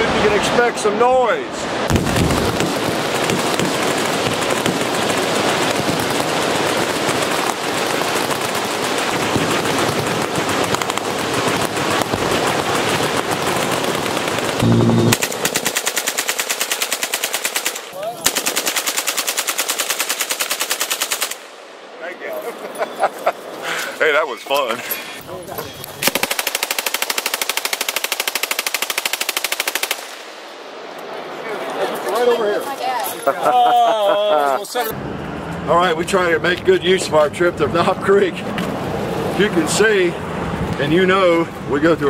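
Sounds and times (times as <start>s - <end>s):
massed machine-gun fire: 1.9s - 21.4s, 26.0s - 30.1s
full-auto gun bursts close by: 1.9s - 21.5s, 26.1s - 30.2s
target exploding boom: 14.6s - 15.2s.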